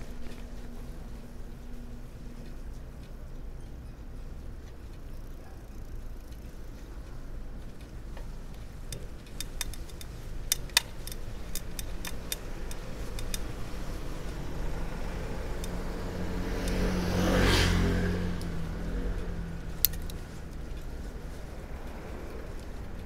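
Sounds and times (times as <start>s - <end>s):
sharp irregular clicks: 4.6s - 16.9s, 19.2s - 23.0s
car passing close by: 13.6s - 20.4s.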